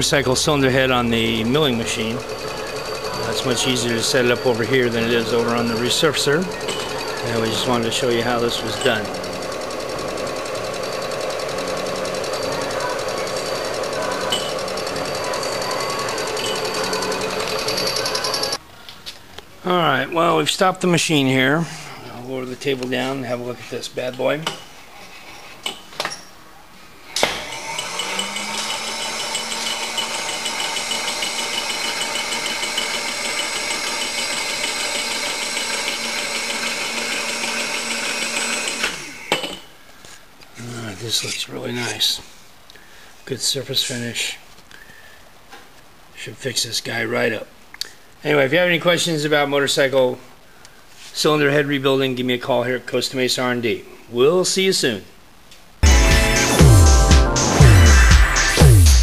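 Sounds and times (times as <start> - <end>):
fast fine ticking: 0.0 - 18.6
milling machine cutting metal: 0.0 - 18.6, 27.2 - 39.3.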